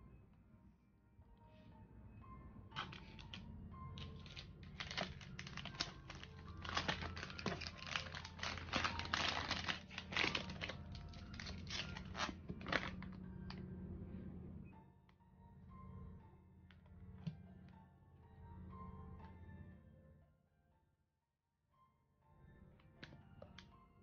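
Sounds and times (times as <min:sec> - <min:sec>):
plastic packaging crinkling: 0:02.8 - 0:03.4, 0:04.0 - 0:13.1.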